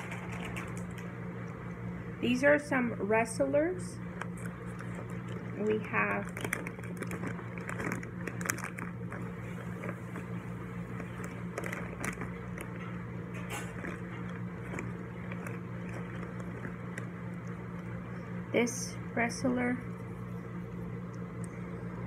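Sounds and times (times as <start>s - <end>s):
plastic bag crinkling: 0.0s - 1.0s, 4.0s - 18.2s
steady low hum: 0.0s - 22.0s.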